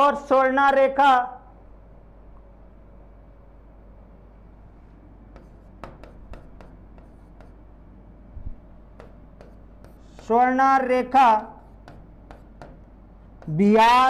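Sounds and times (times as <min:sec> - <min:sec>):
marker scratching on whiteboard: 0:05.3 - 0:07.7, 0:08.9 - 0:14.0.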